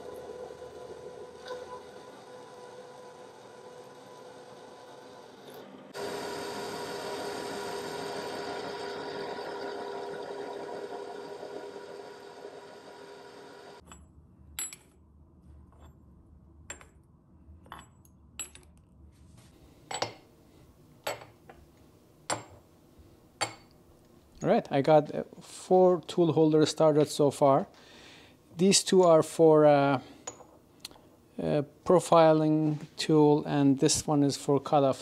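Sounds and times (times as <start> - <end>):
mill cutting metal: 0.0 - 13.8.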